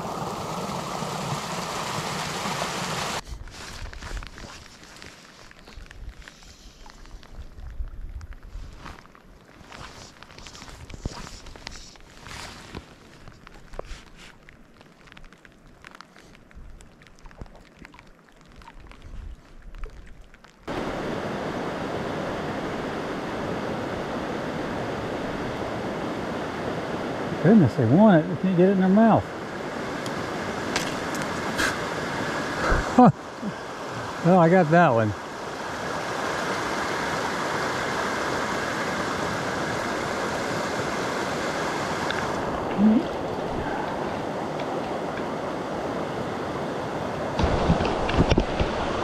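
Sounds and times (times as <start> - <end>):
stream flowing over stones: 0.0 - 8.2, 8.9 - 25.8, 27.7 - 49.0.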